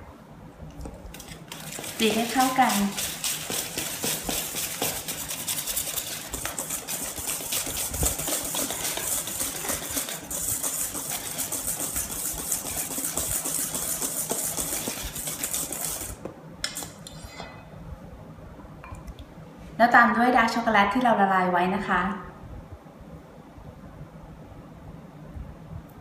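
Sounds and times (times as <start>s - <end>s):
whisk scraping metal bowl: 0.8s - 17.5s.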